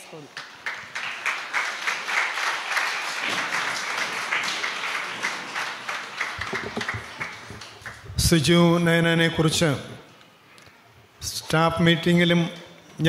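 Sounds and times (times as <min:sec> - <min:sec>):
audience applauding: 0:00.3 - 0:08.2.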